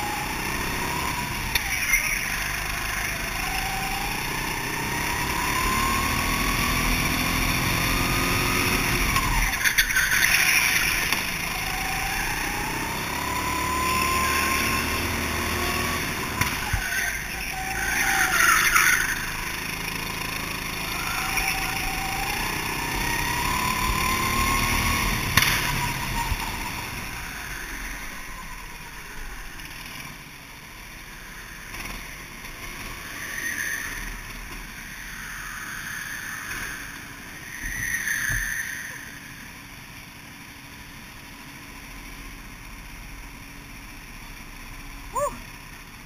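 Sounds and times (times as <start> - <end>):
go-kart engine running: 0.0 - 46.0.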